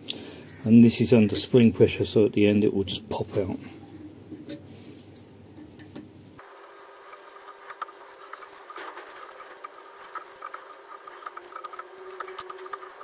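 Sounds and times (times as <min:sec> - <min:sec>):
metal clicks and scrapes: 0:07.0 - 0:13.0.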